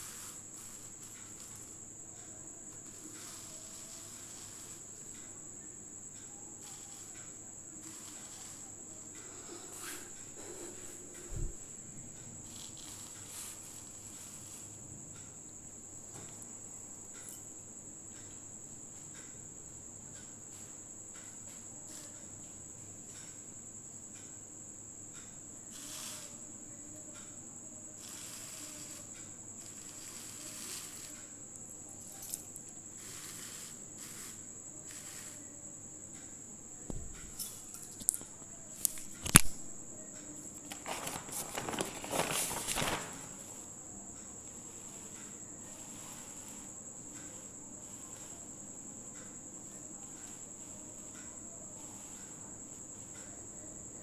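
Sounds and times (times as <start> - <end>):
cricket trilling: 0.0 - 54.0
paper sheets rustling: 40.6 - 43.6.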